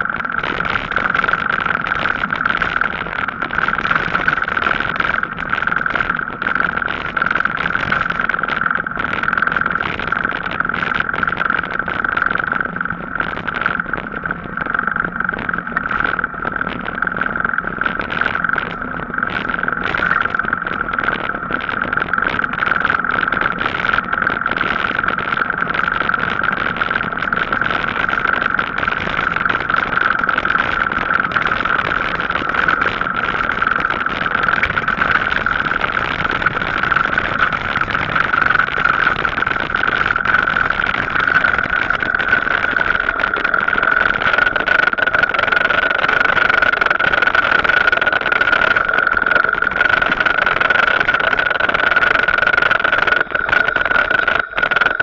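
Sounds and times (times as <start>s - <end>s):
high-pitched whine: 0.0s - 55.0s
rushing noise of riding bike: 0.0s - 55.0s.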